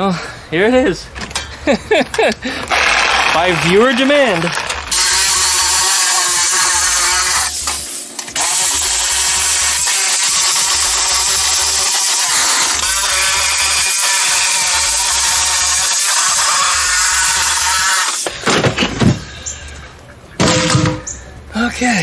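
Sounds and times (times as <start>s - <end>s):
reciprocating saw cutting sheet metal: 4.9s - 18.2s.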